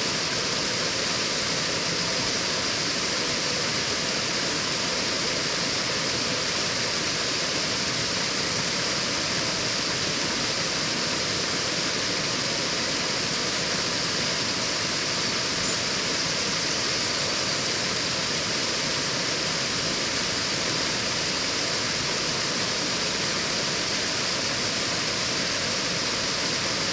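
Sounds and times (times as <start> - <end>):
small waterfall pouring: 0.0 - 26.9.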